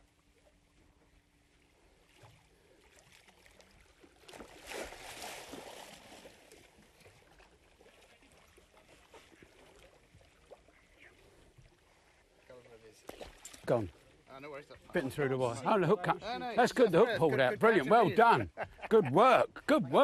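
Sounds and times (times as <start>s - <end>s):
water sloshing: 0.1s - 17.1s
shark splashing: 2.9s - 10.9s.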